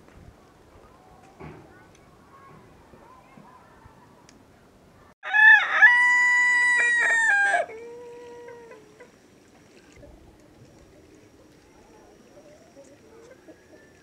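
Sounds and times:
rooster crowing: 5.2s - 8.8s.

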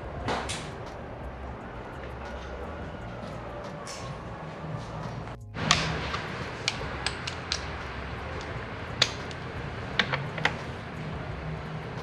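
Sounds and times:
hand tools clicking and knocking: 5.6s - 10.8s.

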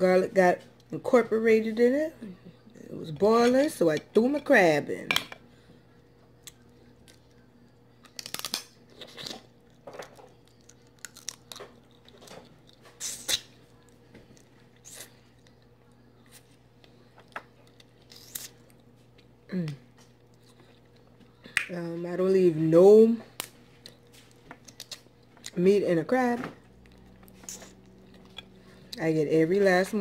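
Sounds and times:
chewing and lip-smacking: 6.4s - 19.3s, 20.0s - 21.6s, 23.4s - 25.6s, 26.7s - 29.0s
crab shell crunches: 8.0s - 14.0s.

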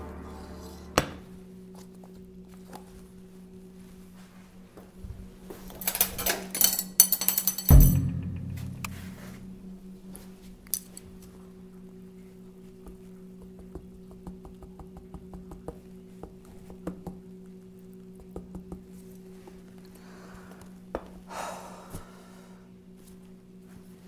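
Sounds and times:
steady low hum: 7.3s - 14.2s.

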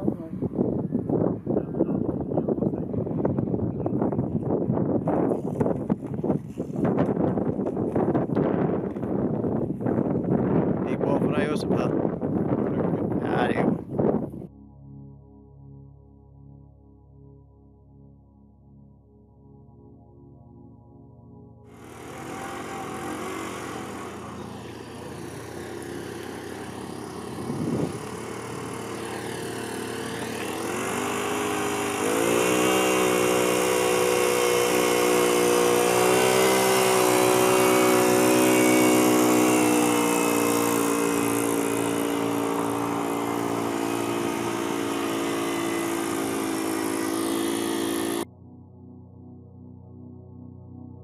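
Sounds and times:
model truck engine: 21.7s - 48.3s.

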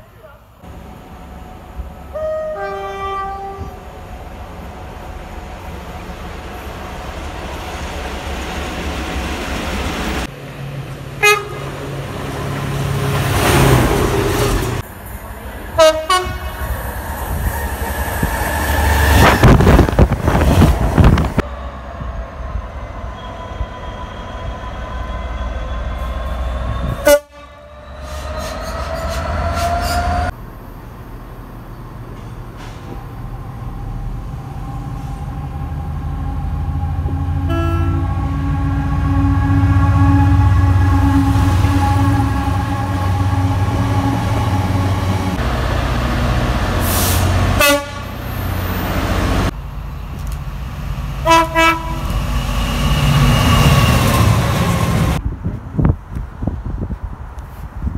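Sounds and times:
train engines and wheels rumbling: 0.0s - 57.9s
locomotive horn blasts: 2.1s - 3.8s, 11.2s - 11.7s, 15.8s - 16.6s, 26.8s - 27.8s, 37.1s - 45.0s, 47.6s - 48.2s, 51.2s - 52.1s.

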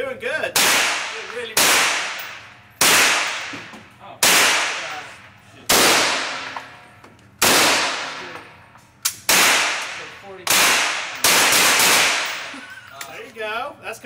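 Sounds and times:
rifle shots with echo: 0.6s - 6.8s, 7.4s - 8.4s, 9.2s - 12.5s.

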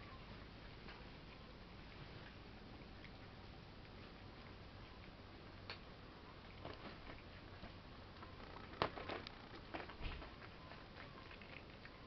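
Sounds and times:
cats clicking and scuffling on floor: 6.5s - 12.0s.

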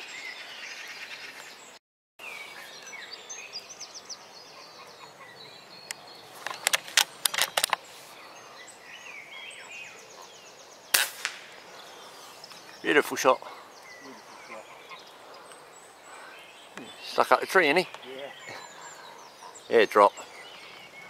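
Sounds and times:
small birds chirping: 0.0s - 21.0s
rattle of sharp clicks: 6.4s - 7.8s.

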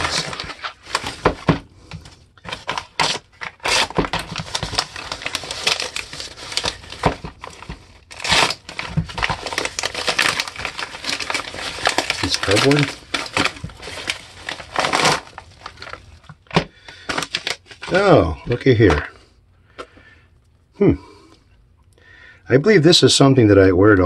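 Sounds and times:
paper ripping: 0.0s - 1.4s, 2.4s - 16.1s
paper envelope crinkling: 0.0s - 19.1s.

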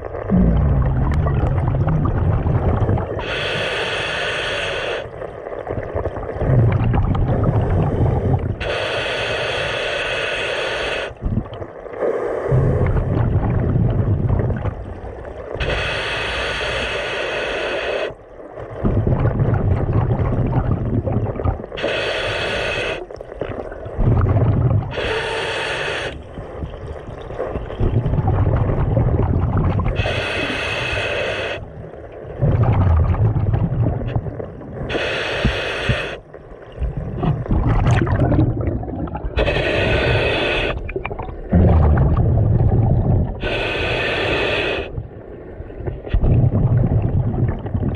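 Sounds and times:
exhaled bubbles rumbling: 0.0s - 3.8s, 5.0s - 8.8s, 11.1s - 16.0s, 18.2s - 31.0s, 31.6s - 47.9s
regulator hissing inhales: 3.2s - 5.1s, 8.0s - 11.2s, 15.6s - 18.2s, 21.8s - 23.1s, 24.9s - 26.2s, 30.0s - 31.7s, 34.9s - 36.3s, 39.4s - 40.9s, 43.4s - 45.0s.

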